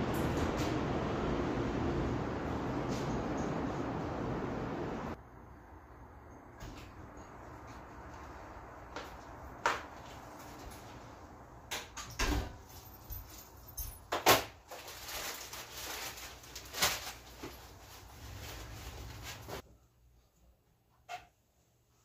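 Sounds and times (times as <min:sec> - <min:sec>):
footsteps: 0:07.4 - 0:11.2
rustling: 0:14.6 - 0:19.6.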